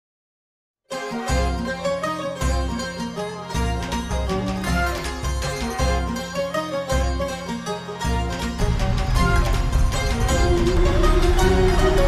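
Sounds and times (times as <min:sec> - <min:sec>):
plucked string melody: 0:00.9 - 0:12.0
deep bass note: 0:08.6 - 0:12.0.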